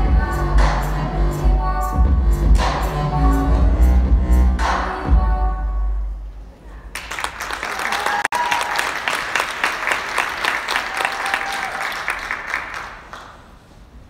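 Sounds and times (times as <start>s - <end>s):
audience applauding: 6.9s - 13.6s
brief cheers: 7.7s - 9.0s, 10.7s - 12.2s.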